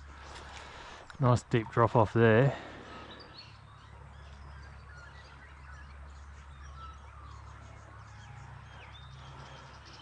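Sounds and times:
birds chirping and whistling: 0:02.4 - 0:10.0.

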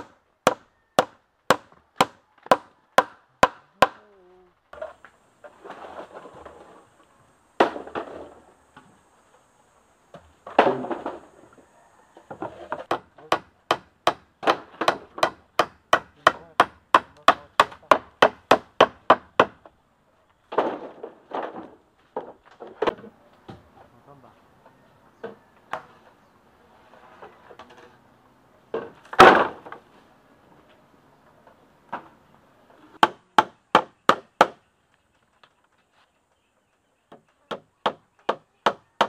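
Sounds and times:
hammer knocking on bamboo: 0:00.0 - 0:04.0, 0:12.4 - 0:19.7, 0:33.0 - 0:34.6, 0:37.1 - 0:39.0.

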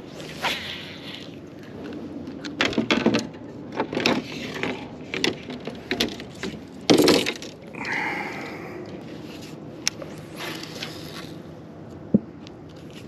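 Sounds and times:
fishing gear knocking and clattering: 0:02.4 - 0:07.6.

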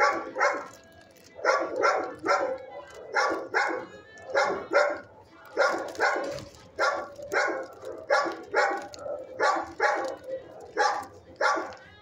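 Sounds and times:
dogs barking: 0:00.0 - 0:12.0.

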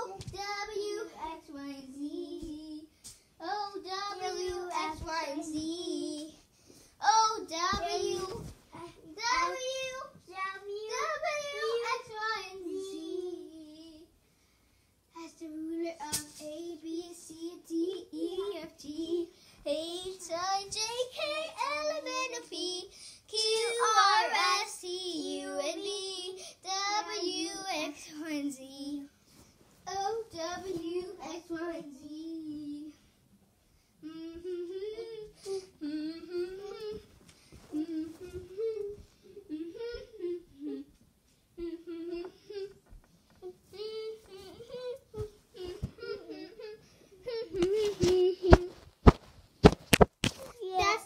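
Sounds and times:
child singing: 0:00.0 - 0:06.4, 0:07.0 - 0:14.1, 0:15.2 - 0:29.1, 0:29.9 - 0:33.0.

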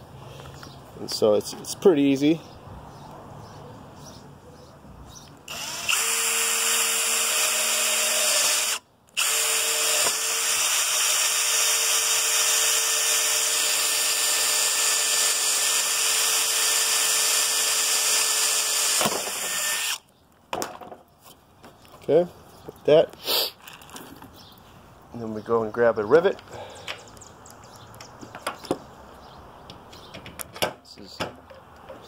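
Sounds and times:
cordless drill boring: 0:05.5 - 0:20.0.

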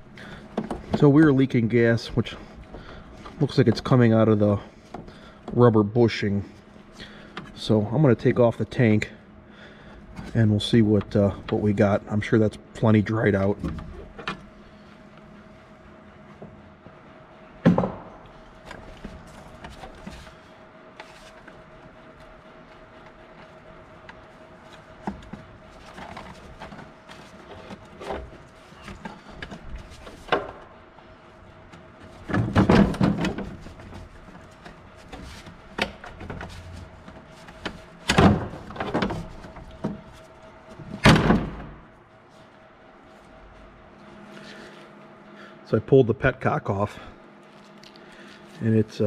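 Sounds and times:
faint steady hum: 0:00.0 - 0:49.0
gloved hand handling plastic tank: 0:17.8 - 0:30.8, 0:31.6 - 0:41.9.

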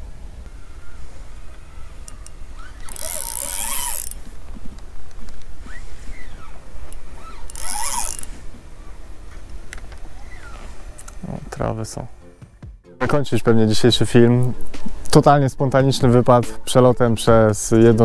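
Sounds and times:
fishing reel whirring: 0:02.0 - 0:04.2, 0:05.6 - 0:08.4.

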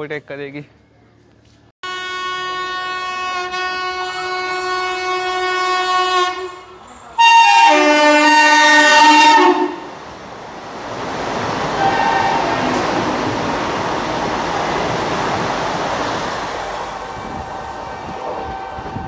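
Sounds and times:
multi-note chord horn: 0:01.8 - 0:09.9
long steady train horn: 0:01.8 - 0:10.0, 0:11.8 - 0:12.9, 0:17.1 - 0:19.0
rush of train noise: 0:03.8 - 0:19.0.

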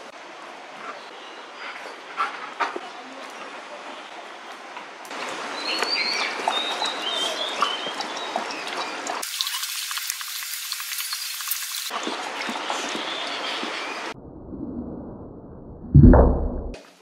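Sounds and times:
dog lapping and slurping: 0:05.2 - 0:09.5, 0:11.9 - 0:13.9.

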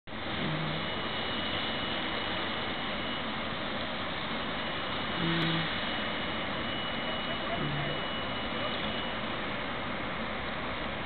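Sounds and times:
high whine: 0:00.1 - 0:09.9
train equipment hiss and hum: 0:00.1 - 0:11.0
brief low tone: 0:00.4 - 0:01.0, 0:05.2 - 0:05.8, 0:06.6 - 0:09.2.

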